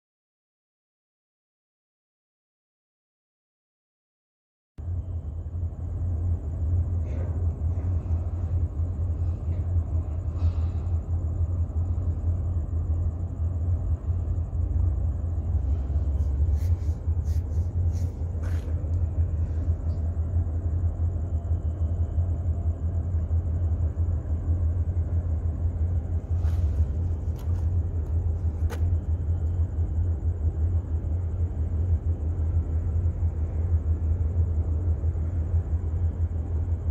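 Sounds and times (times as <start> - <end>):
ship engine rumble: 4.8 - 36.9.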